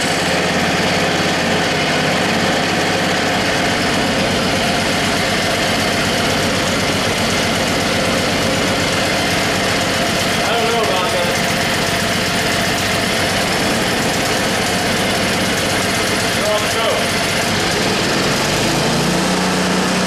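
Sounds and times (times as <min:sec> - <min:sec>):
snowblower engine running: 0:00.0 - 0:20.0.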